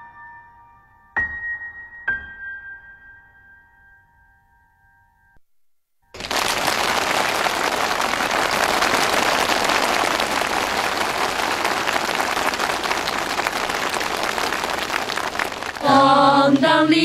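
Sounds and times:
crowd applauding: 0:06.2 - 0:17.0.

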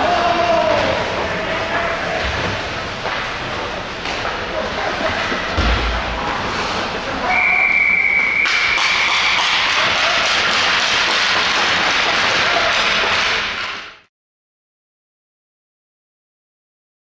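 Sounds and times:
whistle blast: 0:07.2 - 0:09.2.

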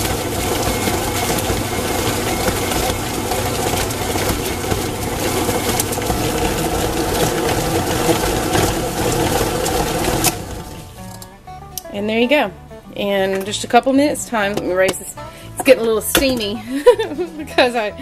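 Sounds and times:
stand mixer motor whirring: 0:00.0 - 0:11.2.

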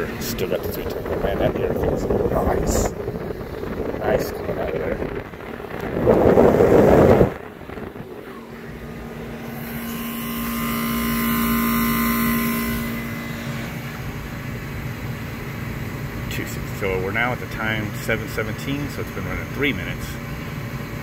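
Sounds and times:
blower air rushing on microphone: 0:00.0 - 0:14.2
air conditioner humming: 0:00.0 - 0:21.0.

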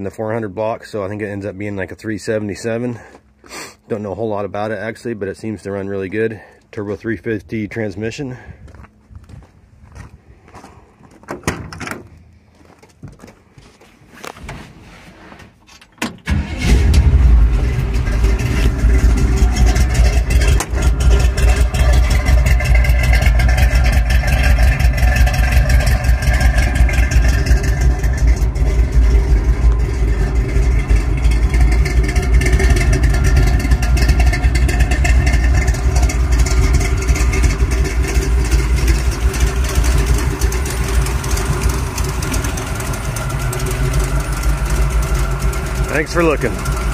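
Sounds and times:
car engine starting and idling: 0:16.0 - 0:46.9.

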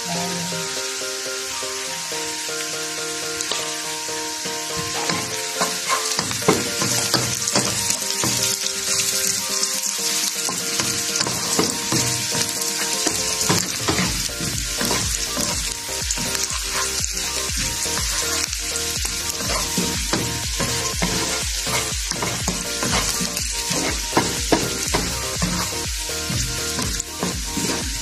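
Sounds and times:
food sizzling in hot oil: 0:00.0 - 0:28.0
wooden spatula scraping a pan: 0:04.8 - 0:07.9, 0:10.5 - 0:18.5, 0:19.1 - 0:28.0.

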